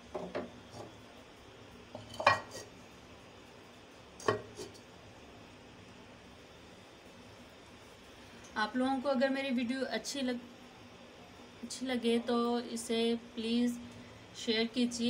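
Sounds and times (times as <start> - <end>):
clay lid clinking on clay pot: 2.0 - 2.6.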